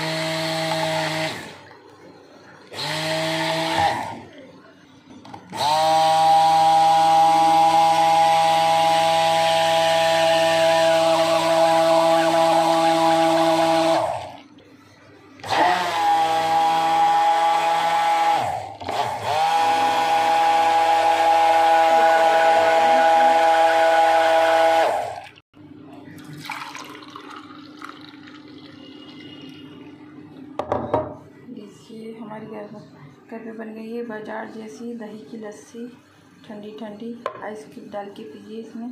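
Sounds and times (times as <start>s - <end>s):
electric blender motor whine: 0.0s - 1.7s, 2.7s - 4.3s, 5.5s - 14.4s, 15.4s - 25.4s
liquid pouring: 25.2s - 25.4s, 26.1s - 30.0s.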